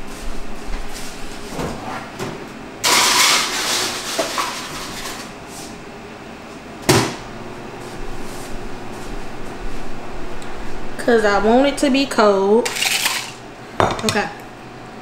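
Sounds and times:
ice dispenser grinding crushed ice: 0:02.8 - 0:05.3, 0:12.6 - 0:13.4.

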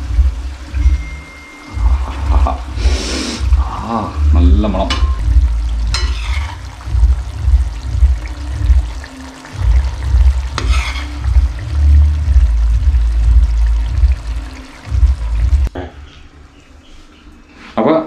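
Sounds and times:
heavy low rumble: 0:00.0 - 0:10.6, 0:11.2 - 0:15.7
metal spoon stirring thick curry: 0:05.9 - 0:06.8, 0:10.6 - 0:11.6
spoon scraping metal pot: 0:05.9 - 0:06.8, 0:10.5 - 0:11.4.

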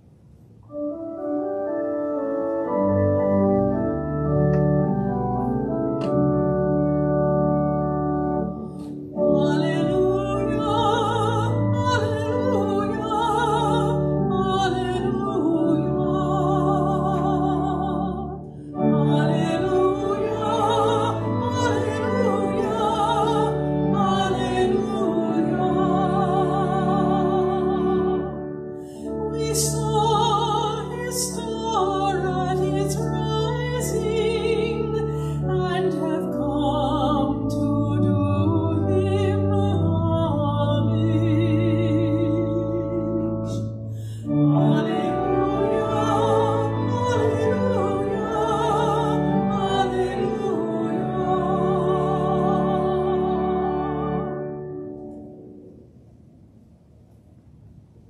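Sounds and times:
organ playing held chords: 0:00.7 - 0:55.7
cantor singing with vibrato: 0:09.2 - 0:28.4, 0:44.3 - 0:54.6.

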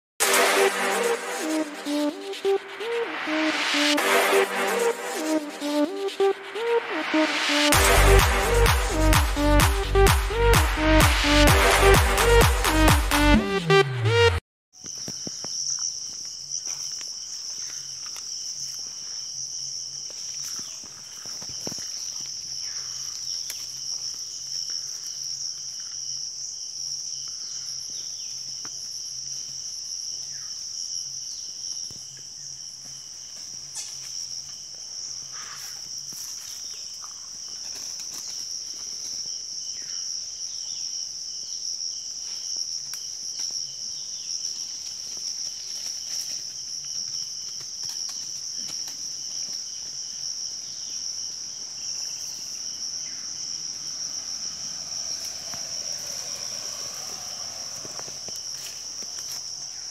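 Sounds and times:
high-pitched insect chorus: 0:14.8 - 0:59.9.

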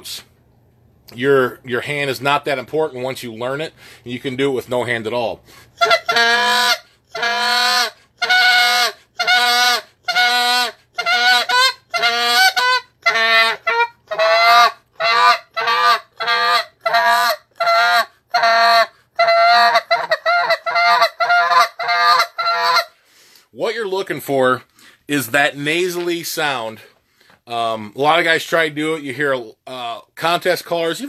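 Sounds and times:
goose call honking: 0:05.8 - 0:22.9.

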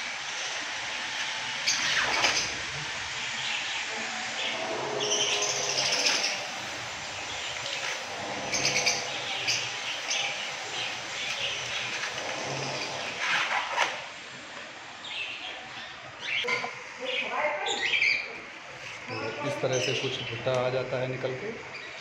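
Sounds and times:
budgerigars chirping: 0:07.2 - 0:12.0.

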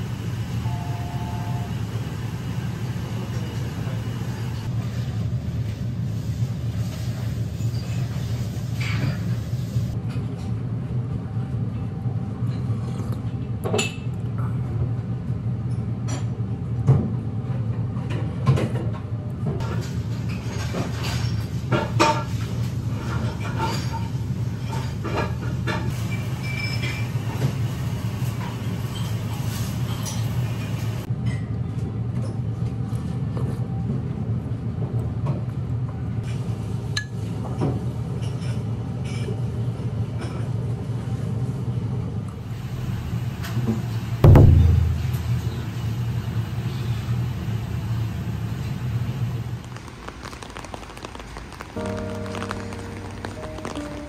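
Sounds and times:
low rumble of room noise: 0:42.7 - 0:54.0.

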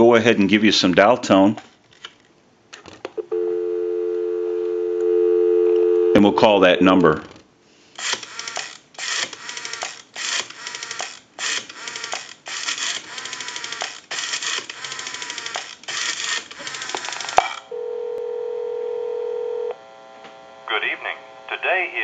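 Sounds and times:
telephone ringback tone: 0:03.2 - 0:06.4, 0:17.7 - 0:19.8
rotary dial clicking: 0:08.0 - 0:17.6.

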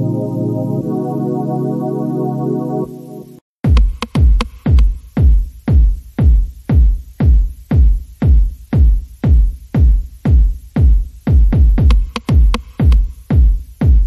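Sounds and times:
electronic dance music: 0:00.0 - 0:14.0
heavy kick drum thumps: 0:03.6 - 0:14.0.

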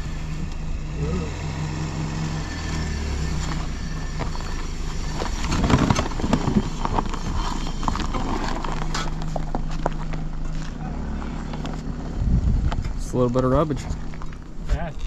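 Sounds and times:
vehicle engine idling: 0:00.0 - 0:15.0
footsteps crunching on rocky ground: 0:03.6 - 0:12.8.

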